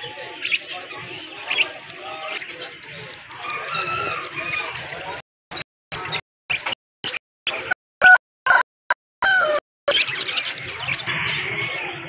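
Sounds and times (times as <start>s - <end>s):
chickens clucking: 0.0s - 12.0s
rooster crowing: 8.0s - 8.6s, 9.2s - 9.6s.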